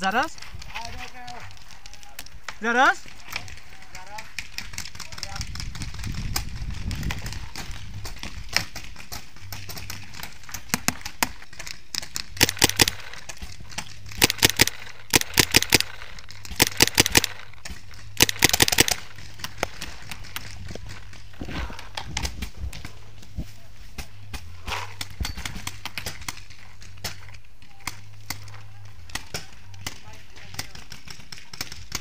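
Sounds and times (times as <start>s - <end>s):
paintball markers popping: 11.9s - 20.4s.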